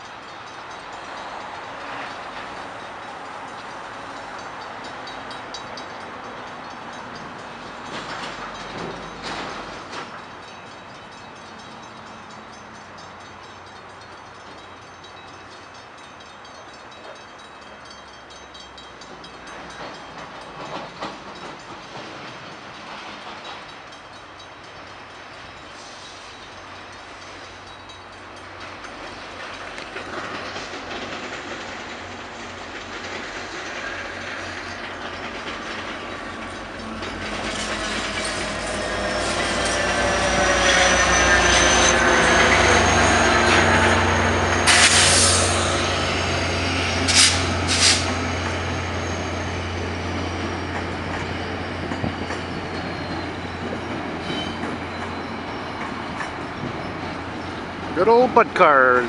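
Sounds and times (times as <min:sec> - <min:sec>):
diesel locomotive engine rumble: 0:00.0 - 0:59.0
train wheel clatter: 0:00.0 - 0:59.0
wheel clanks on track: 0:03.1 - 0:10.6
high wheel squeal: 0:37.0 - 0:59.0.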